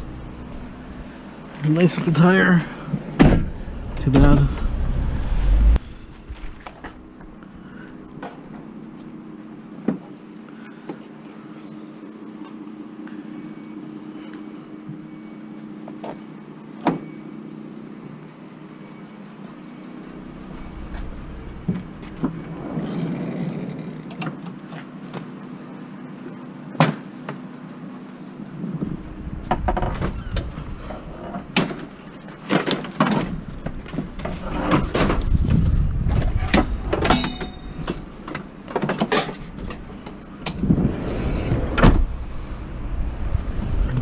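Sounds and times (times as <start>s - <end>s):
low rumble: 2.7s - 8.6s, 19.9s - 24.1s, 28.7s - 32.0s, 39.4s - 44.0s.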